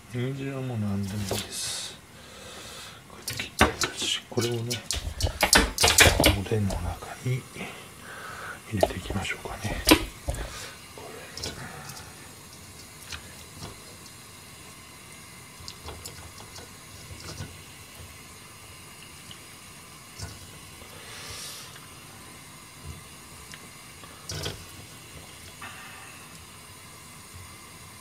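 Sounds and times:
faint steady hiss: 0.0 - 28.0
light knocks and wet sounds: 1.0 - 1.6, 3.2 - 7.2, 8.8 - 10.7, 11.3 - 14.3, 15.5 - 18.3.

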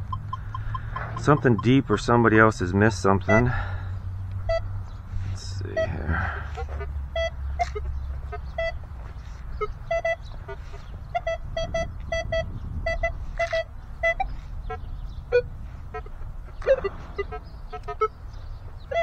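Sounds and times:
metal detector beeps: 0.0 - 1.8, 7.2 - 7.9.

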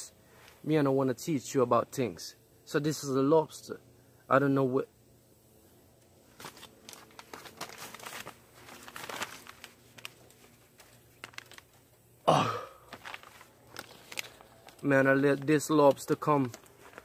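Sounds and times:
man clearing his throat: 12.2 - 12.9
faint rustling: 12.9 - 17.0.

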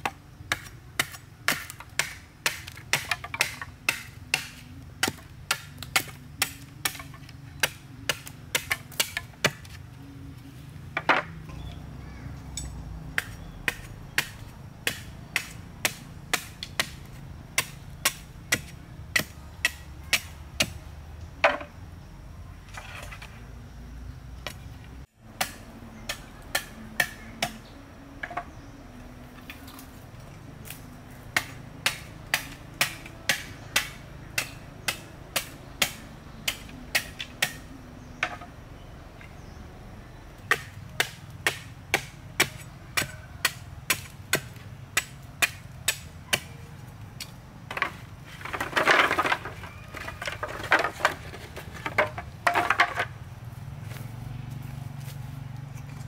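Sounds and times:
machete striking bamboo: 0.0 - 9.8, 12.5 - 20.8, 25.3 - 28.6, 30.6 - 38.5, 40.4 - 46.6, 47.2 - 53.1.

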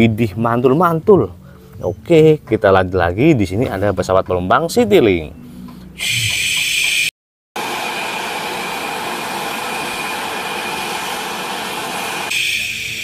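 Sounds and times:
jet engines roaring with whine: 7.6 - 13.0.

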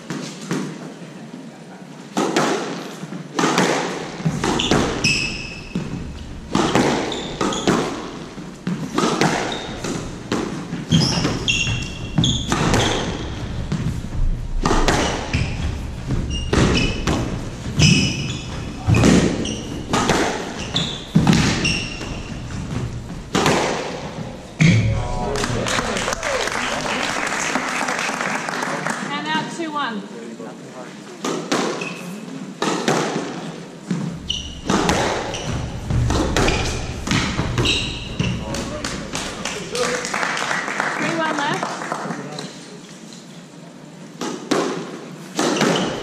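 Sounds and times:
squash ball smacking rackets and walls: 0.0 - 1.0, 2.1 - 25.6, 31.2 - 39.8, 44.1 - 46.0
sneakers squeaking on wooden floor: 3.4 - 25.3, 31.2 - 39.8, 44.8 - 46.0.

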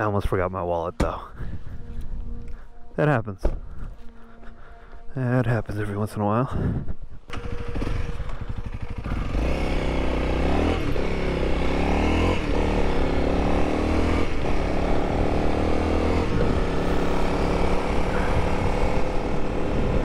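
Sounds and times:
motorcycle engine accelerating: 7.3 - 20.0.

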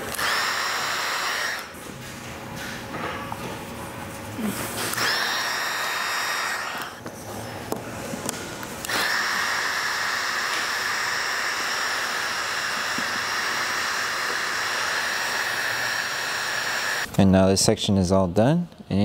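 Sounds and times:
heat gun hissing whine: 0.0 - 1.8, 4.5 - 7.0, 8.8 - 17.1.

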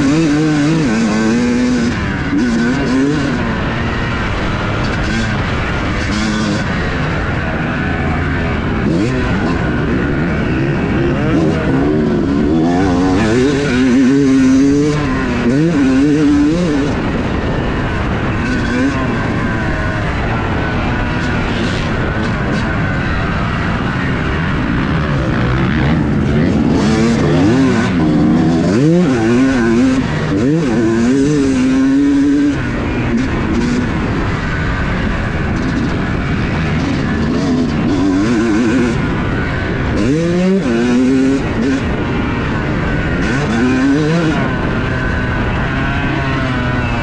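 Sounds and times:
motocross bike engine revving: 0.0 - 47.0.

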